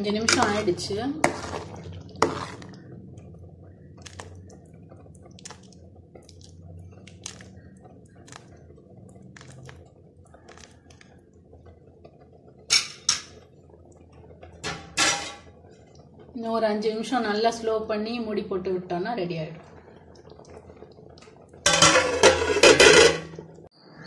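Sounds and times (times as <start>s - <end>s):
curry bubbles popping: 0.0s - 23.8s
low steady hum: 0.0s - 24.0s
cookware knocking: 21.7s - 23.4s.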